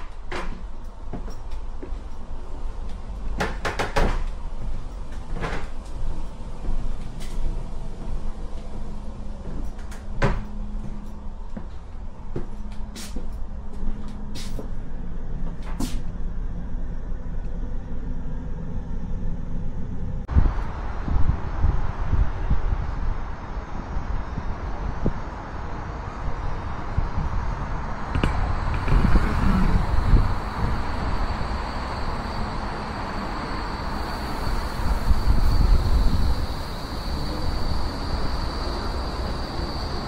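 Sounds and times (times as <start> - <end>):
tram running rumble: 0.0 - 40.0
clacks and rattles: 2.9 - 7.4.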